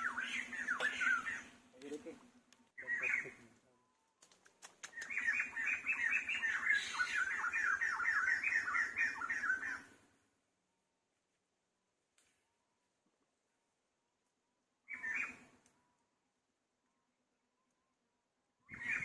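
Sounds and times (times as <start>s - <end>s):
animal chirping: 0.0s - 1.6s, 4.6s - 9.9s
faint clicks: 4.2s - 5.2s, 12.1s - 12.4s.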